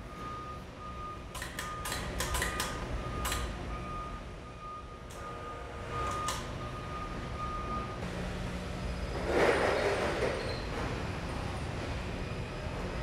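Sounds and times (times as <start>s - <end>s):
sharp clicks: 1.3s - 3.5s.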